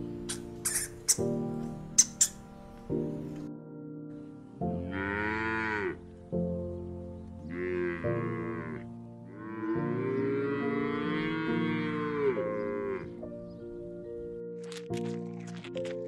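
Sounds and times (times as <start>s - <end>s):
soft background music: 0.0s - 16.0s
cow mooing: 4.7s - 6.0s, 7.5s - 13.2s.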